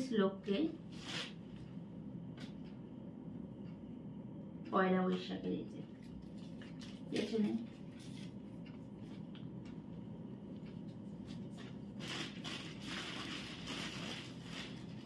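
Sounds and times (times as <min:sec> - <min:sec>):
plastic bag rustling: 0:12.0 - 0:15.0.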